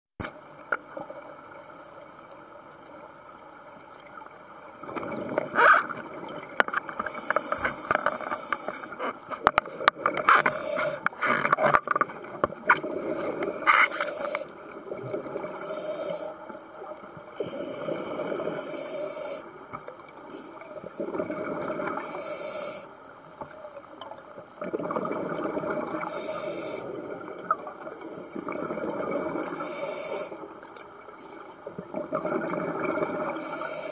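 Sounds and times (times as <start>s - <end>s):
sharp clicks underwater: 4.8s - 14.5s
bubbling exhaled air: 20.6s - 22.1s, 24.6s - 29.7s, 31.8s - 33.9s.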